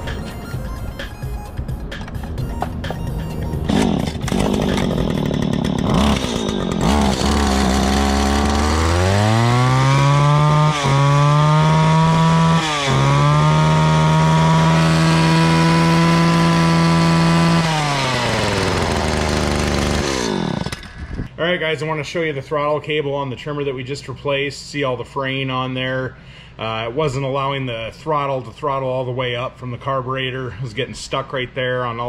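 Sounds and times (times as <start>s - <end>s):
string trimmer engine revving: 3.5s - 21.3s.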